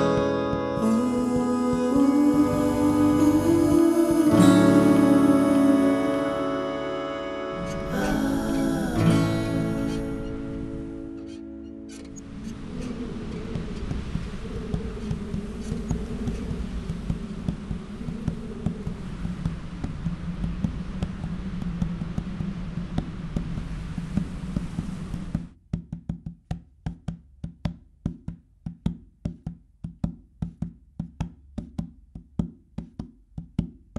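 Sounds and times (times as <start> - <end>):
droning music with low tones: 0.0 - 25.3
dry wood-block knocks: 25.3 - 33.8.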